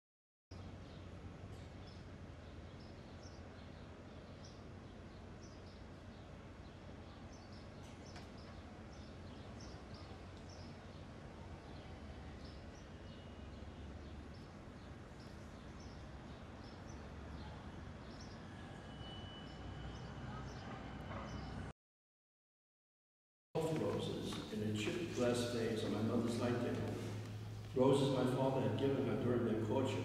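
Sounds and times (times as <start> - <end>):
small birds chirping: 0.5 - 18.5, 19.5 - 21.6
steady low hum: 23.6 - 30.0.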